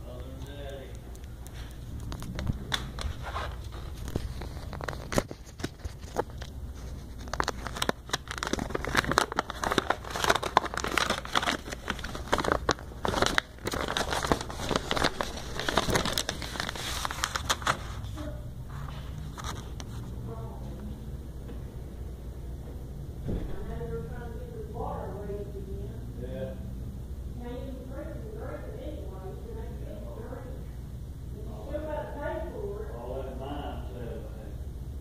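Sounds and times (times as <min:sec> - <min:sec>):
paper rustling and crinkling: 0:01.5 - 0:20.2.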